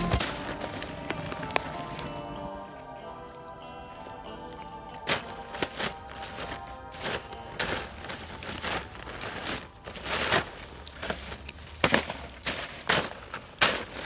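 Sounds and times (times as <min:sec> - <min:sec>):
plastic and paper bags rustling: 0:00.0 - 0:02.6, 0:05.0 - 0:14.0.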